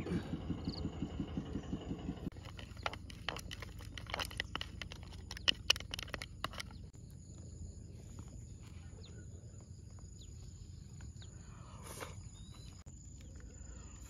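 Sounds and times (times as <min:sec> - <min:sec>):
engine idling: 0:00.0 - 0:06.9.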